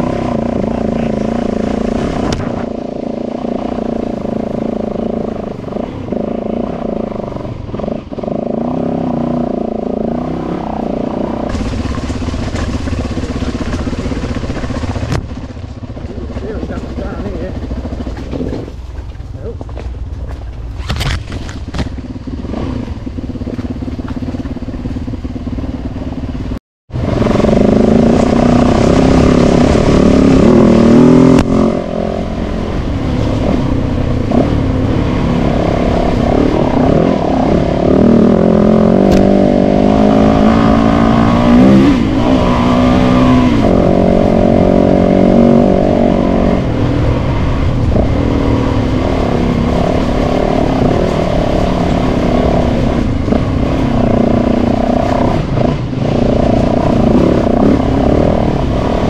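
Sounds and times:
motorcycle engines revving: 0.0s - 59.0s.

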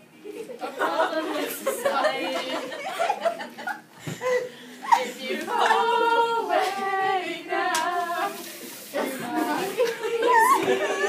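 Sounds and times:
young voices singing: 0.6s - 2.9s, 4.8s - 11.0s.

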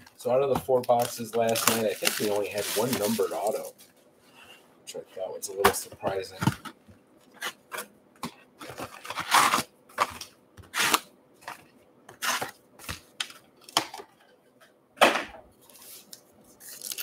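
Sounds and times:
card wrappers crinkling: 0.7s - 3.8s, 15.7s - 17.0s.

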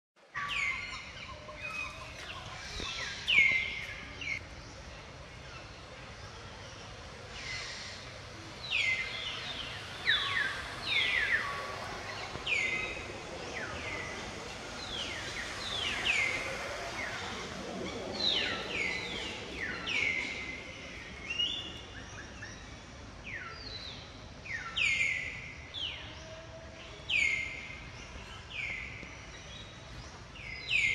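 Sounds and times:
birds whistling downward: 7.2s - 25.4s.

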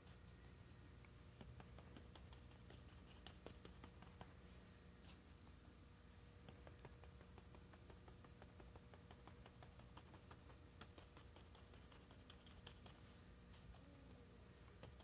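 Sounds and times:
paintbrush tapping on canvas: 1.4s - 4.4s, 6.4s - 13.0s.

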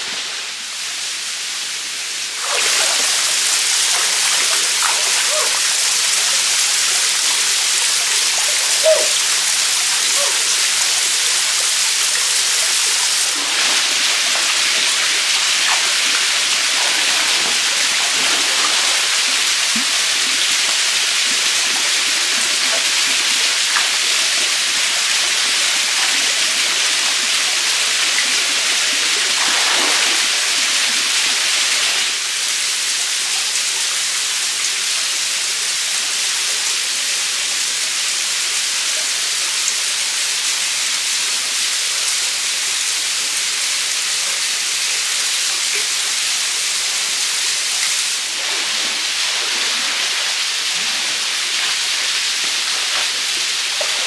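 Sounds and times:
stream flowing over rocks: 0.0s - 34.5s, 38.5s - 54.0s
light water splashes: 2.2s - 32.2s, 47.7s - 54.0s.

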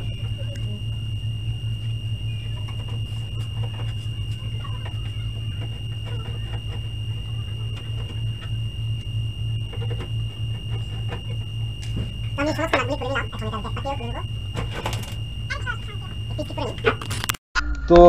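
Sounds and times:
thin high tone: 0.0s - 17.4s
low hum: 0.0s - 18.0s.

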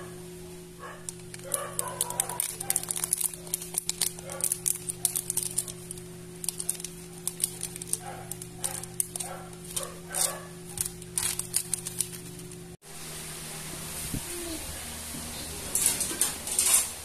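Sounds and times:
steady low hum: 0.0s - 17.0s
plastic wrapper crinkling: 1.0s - 12.8s.

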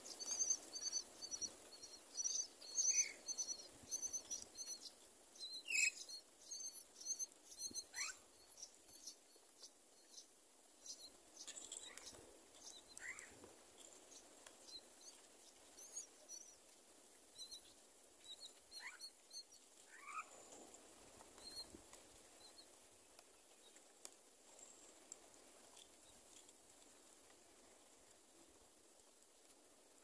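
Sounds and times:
nestlings squeaking and chirping: 0.1s - 13.2s, 18.3s - 20.2s.

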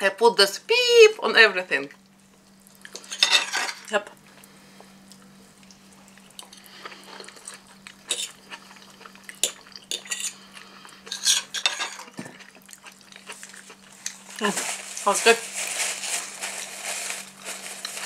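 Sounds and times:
faint steady hum: 0.0s - 18.0s
cutlery scraping on glass plate: 3.1s - 3.9s, 9.9s - 10.4s, 11.1s - 12.1s.

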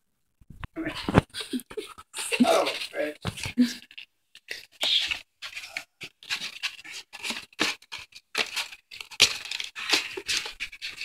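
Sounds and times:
cardboard rustling: 4.6s - 11.0s
claws scratching cardboard: 4.8s - 11.0s.

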